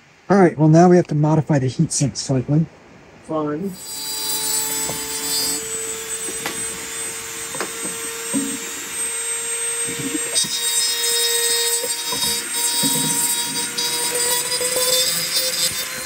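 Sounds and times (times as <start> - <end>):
rotary tool whining: 3.7 - 16.0.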